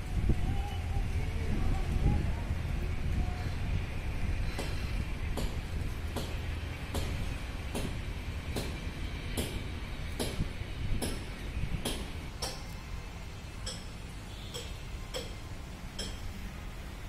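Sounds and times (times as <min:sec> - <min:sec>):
steady low rumble: 0:00.0 - 0:14.3
sharp metallic clicks: 0:11.0 - 0:12.8, 0:13.6 - 0:16.4.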